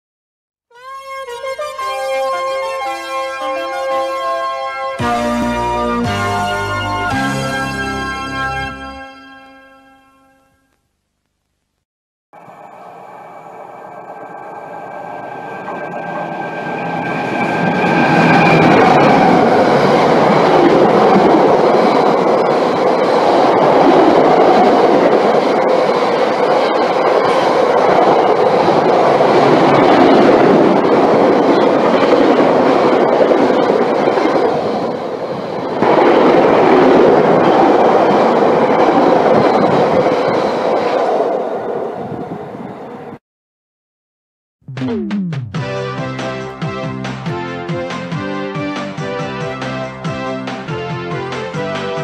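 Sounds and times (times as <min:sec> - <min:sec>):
diesel locomotive passing: 0:12.4 - 0:43.2, 0:45.6 - 0:52.0.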